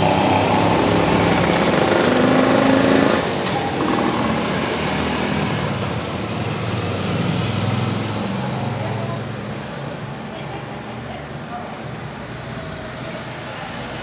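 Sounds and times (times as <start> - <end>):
motorcycles riding past: 0.0 - 9.8.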